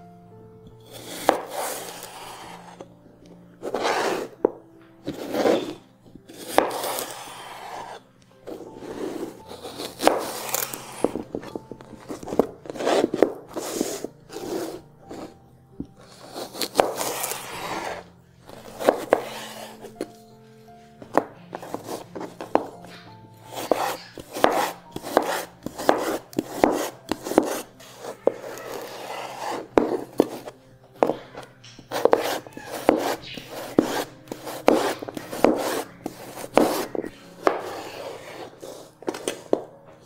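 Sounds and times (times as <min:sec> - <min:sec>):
quiet background music: 0:00.0 - 0:40.0
knife slicing cucumber on board: 0:01.0 - 0:02.1, 0:05.1 - 0:07.2, 0:09.5 - 0:15.3, 0:16.1 - 0:18.0, 0:21.2 - 0:31.2, 0:31.9 - 0:37.9.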